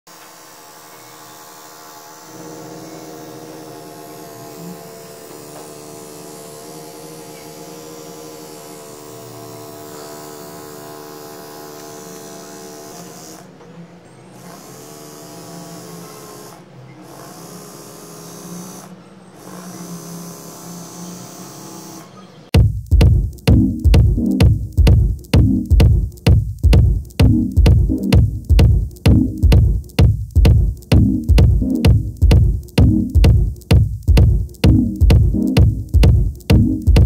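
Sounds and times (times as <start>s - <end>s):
small motor buzzing whine: 0.1s - 22.6s.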